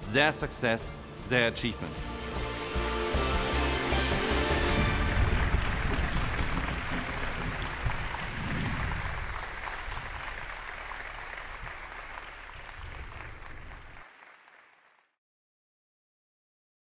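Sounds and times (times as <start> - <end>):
people applauding: 4.3 - 15.2
low rumble: 4.7 - 10.6.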